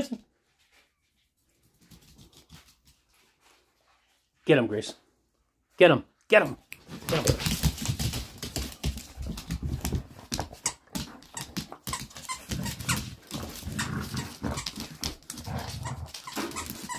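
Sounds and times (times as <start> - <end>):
dog claws on hard floor: 6.8 - 16.9
dogs play-wrestling noises: 6.8 - 16.9.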